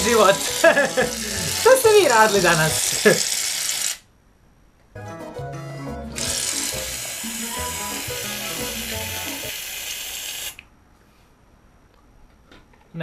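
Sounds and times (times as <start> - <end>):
aerosol can spraying: 0.0 - 4.0, 6.2 - 10.6
background music with bass: 5.0 - 6.2.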